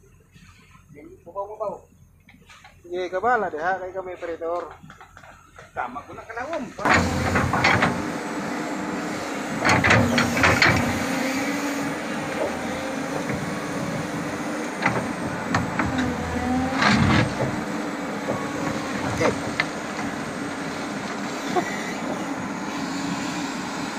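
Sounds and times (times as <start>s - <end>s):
backhoe engine running: 3.9s - 23.9s
bucket scraping and clanking: 6.8s - 8.1s, 14.8s - 20.2s.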